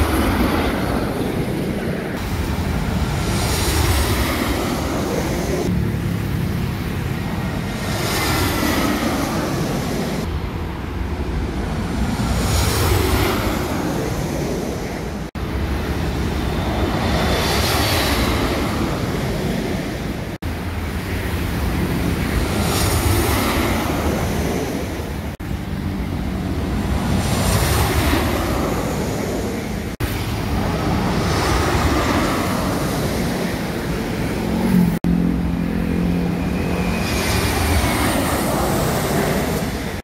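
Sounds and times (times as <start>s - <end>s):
jet airliner overhead: 0.0s - 40.0s
wind buffeting microphone: 0.0s - 40.0s
motorbikes and cars passing: 2.2s - 10.6s, 25.3s - 40.0s.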